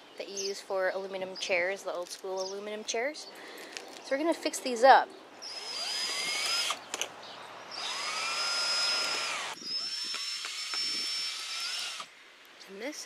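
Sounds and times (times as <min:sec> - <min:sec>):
cordless drill whining: 0:05.4 - 0:06.8, 0:07.8 - 0:12.1.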